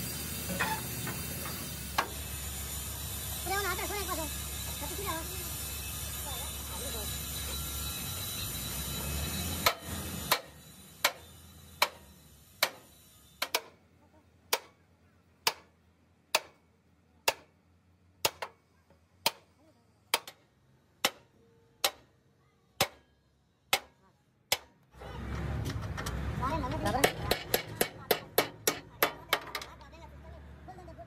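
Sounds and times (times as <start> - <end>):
hammer striking metal: 8.7 - 13.8, 14.5 - 14.8, 15.4 - 15.7, 20.1 - 20.4, 21.0 - 22.1, 22.8 - 23.1, 23.7 - 24.8, 26.8 - 29.7.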